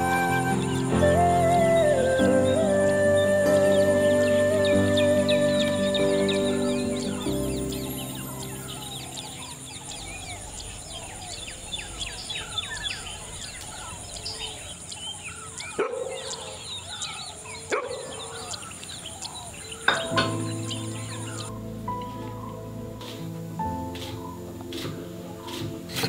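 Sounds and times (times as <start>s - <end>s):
background music: 0.0s - 10.2s, 19.9s - 26.0s
small birds chirping: 0.0s - 26.0s.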